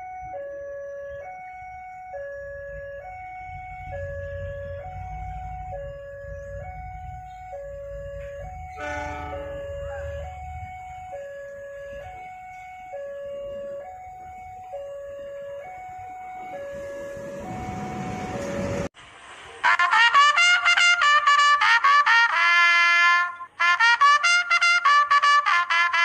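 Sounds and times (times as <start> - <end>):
two-tone crossing alarm chime: 0.0 - 18.9
diesel locomotive rumble: 0.1 - 24.0
train horn: 7.3 - 13.8, 19.6 - 26.0.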